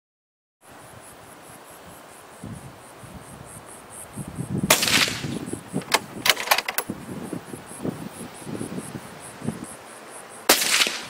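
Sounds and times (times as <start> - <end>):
insects chirping: 0.6 - 11.0
sharp clicks: 4.8 - 6.9.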